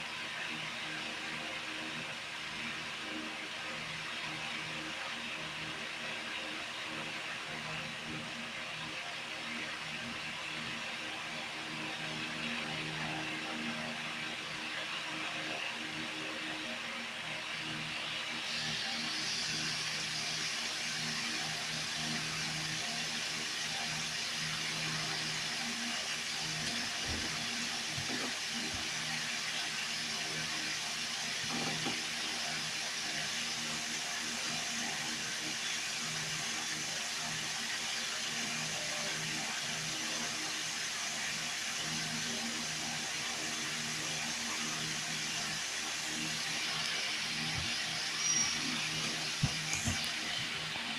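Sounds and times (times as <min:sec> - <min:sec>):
aquarium air pump hissing: 0:18.4 - 0:37.9, 0:42.1 - 0:50.9.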